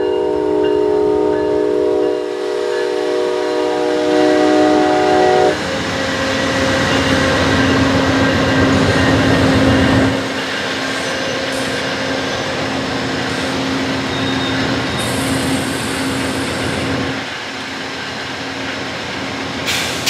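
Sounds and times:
train horn chord: 0:00.0 - 0:05.7
train cars rumbling on rails: 0:00.0 - 0:20.0.

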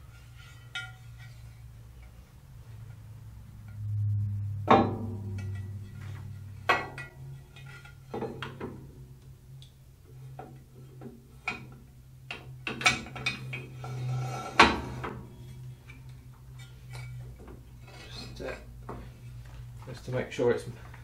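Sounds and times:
metal clatter and knocks: 0:04.7 - 0:09.1.

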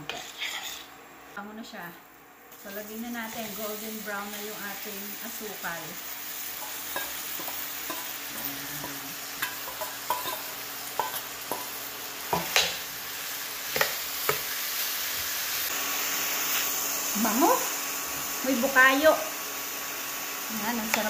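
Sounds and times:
coconut sizzling in caramel: 0:00.0 - 0:21.0
metal spoon knocking on pan: 0:06.6 - 0:08.1, 0:09.4 - 0:10.4.

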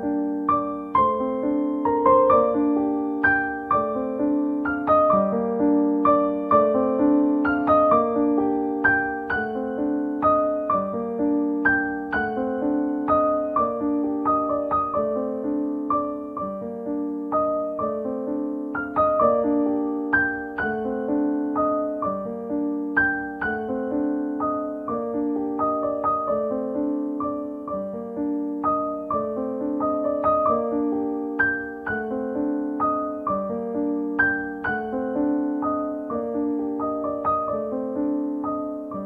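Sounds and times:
gentle piano music: 0:00.0 - 0:39.0.

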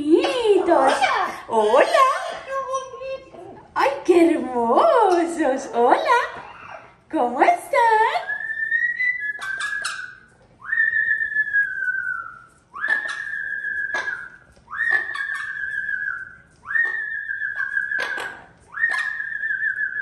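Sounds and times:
parrot whistled cries: 0:06.3 - 0:07.0, 0:08.2 - 0:20.0.

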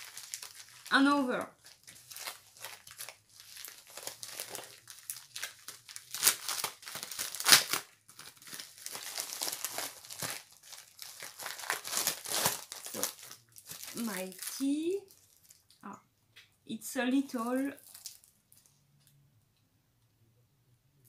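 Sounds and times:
plastic bag crinkling: 0:00.0 - 0:15.8, 0:17.4 - 0:18.8.

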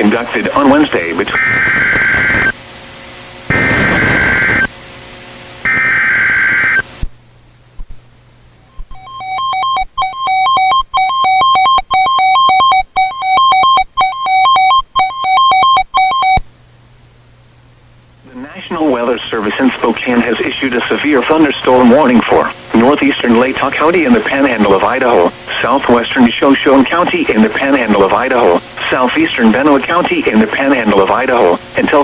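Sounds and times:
buzzing digital data bursts: 0:00.6 - 0:02.6, 0:03.5 - 0:04.7, 0:05.6 - 0:07.0, 0:08.8 - 0:16.4
warning alarm tone: 0:01.3 - 0:02.6, 0:03.5 - 0:04.7, 0:05.6 - 0:06.9, 0:08.9 - 0:16.4.

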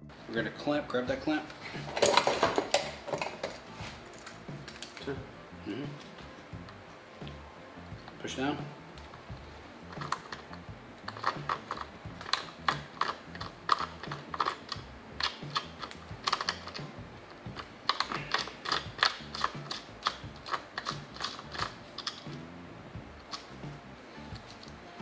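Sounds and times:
plastic suction clamp clicking: 0:17.9 - 0:22.4.

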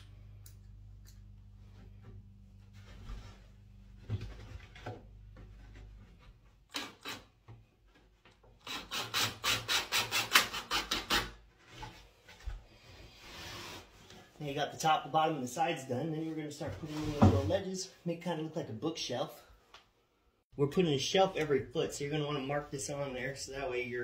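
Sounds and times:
drill driving screws into wood: 0:06.7 - 0:07.3, 0:08.6 - 0:11.3.

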